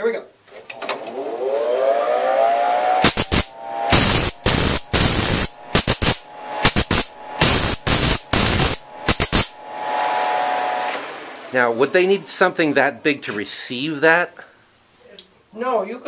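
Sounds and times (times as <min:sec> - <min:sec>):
motor whine: 0:00.9 - 0:12.6
rasping spark bursts: 0:02.9 - 0:12.8.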